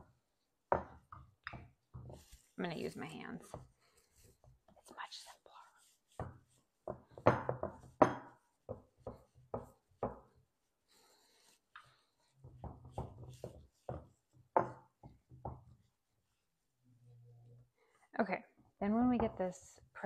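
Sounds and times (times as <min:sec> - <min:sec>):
hands patting dough: 0:11.8 - 0:15.9.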